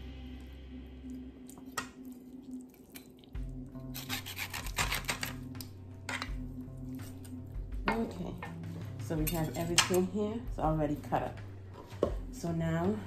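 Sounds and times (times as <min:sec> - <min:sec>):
background music with bass line: 0:00.0 - 0:02.0, 0:03.4 - 0:13.0
knife scraping through meat: 0:03.8 - 0:05.4.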